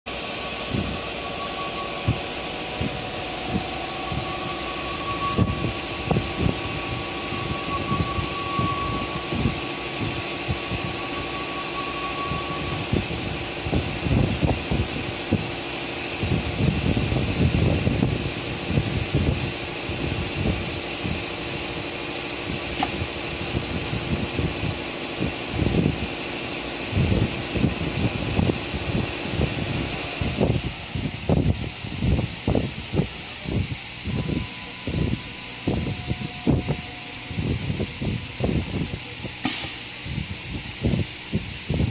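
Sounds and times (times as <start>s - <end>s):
thin high tone: 0.1s - 27.6s, 32.5s - 41.3s
cnc router hiss and hum: 0.1s - 41.9s
sharp click: 22.8s - 23.0s, 39.4s - 39.9s.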